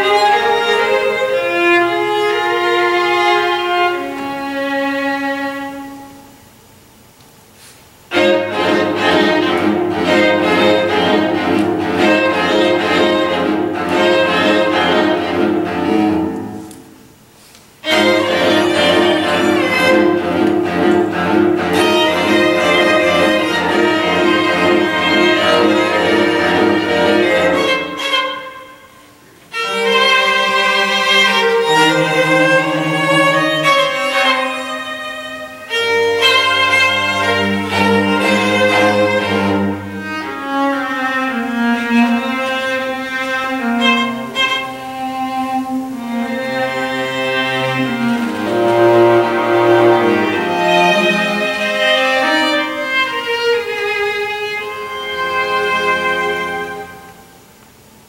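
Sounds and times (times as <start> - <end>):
string quartet playing: 0.0 - 58.0.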